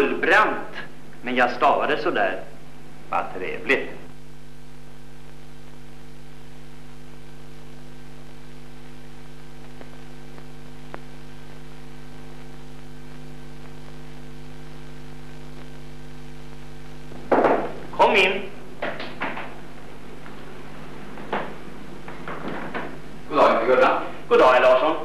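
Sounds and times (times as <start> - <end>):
faint film hiss: 0.0 - 25.0
mains hum: 0.0 - 25.0.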